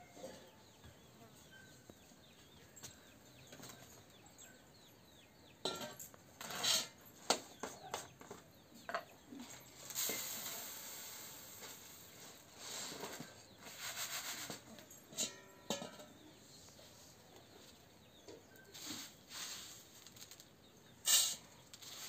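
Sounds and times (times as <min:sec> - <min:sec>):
puffed rice pouring onto tray: 0:09.9 - 0:13.0.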